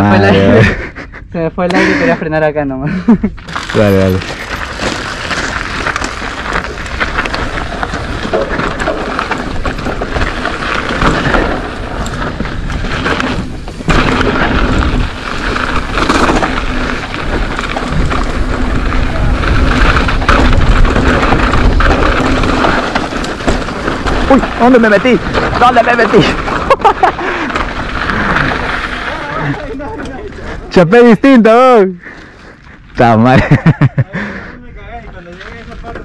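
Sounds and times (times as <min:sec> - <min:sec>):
bike rattling: 0:03.3 - 0:34.0, 0:34.8 - 0:36.0
tyre rumble: 0:03.5 - 0:30.7
wind buffeting microphone: 0:04.2 - 0:26.7.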